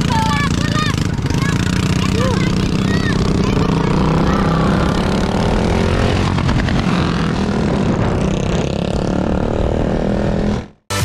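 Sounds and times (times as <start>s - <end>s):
motorcycle engine running: 0.0s - 10.8s
wind rushing over microphone: 2.5s - 10.7s.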